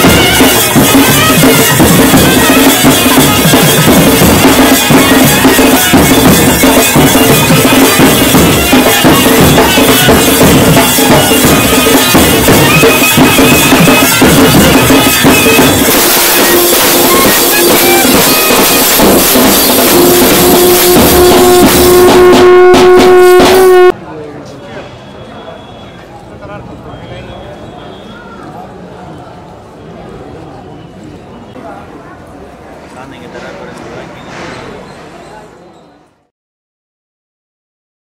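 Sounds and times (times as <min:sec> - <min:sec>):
drums beating: 0:00.0 - 0:24.0
held note: 0:00.0 - 0:24.0.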